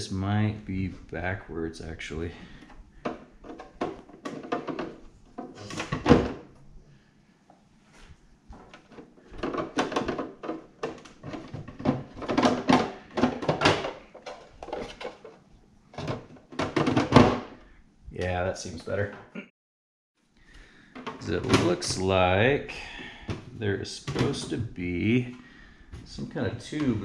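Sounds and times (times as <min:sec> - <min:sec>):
plastic parts knocking and clattering: 0:02.5 - 0:06.6, 0:08.5 - 0:17.7, 0:20.8 - 0:22.2, 0:23.2 - 0:25.3.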